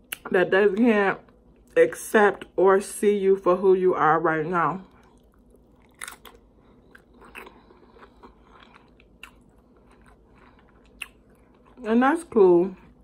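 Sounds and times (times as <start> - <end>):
crunching tortilla chip: 5.4 - 11.3.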